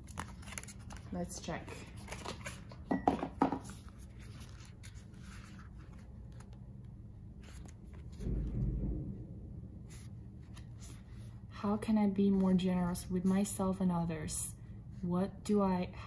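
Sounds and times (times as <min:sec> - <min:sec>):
paper rustling: 0:00.0 - 0:02.8, 0:03.6 - 0:08.4.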